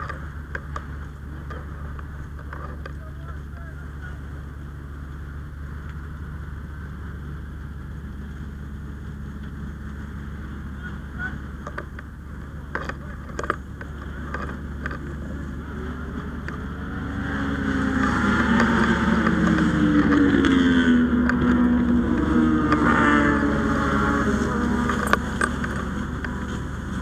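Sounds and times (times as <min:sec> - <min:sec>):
large engine revving: 0:09.4 - 0:27.0
sharp clicks and knocks: 0:11.6 - 0:15.3, 0:24.8 - 0:26.6.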